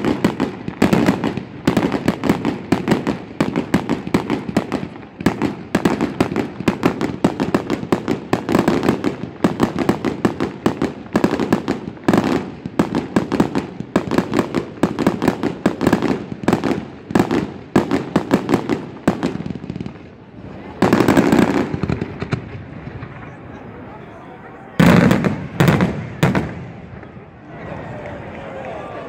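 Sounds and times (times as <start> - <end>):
fireworks bangs and cracks: 0.0 - 24.0, 24.6 - 27.4.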